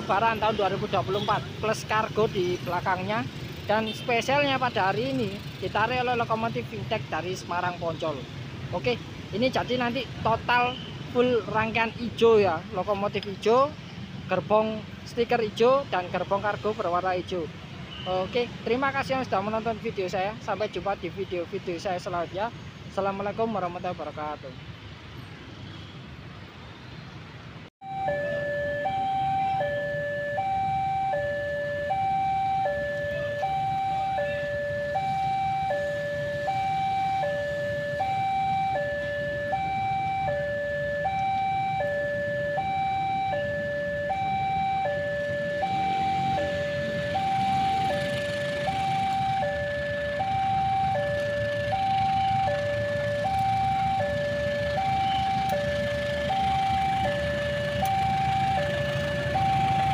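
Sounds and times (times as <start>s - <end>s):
two-tone crossing alarm: 27.8s - 59.9s
diesel locomotive rumble: 42.5s - 59.9s.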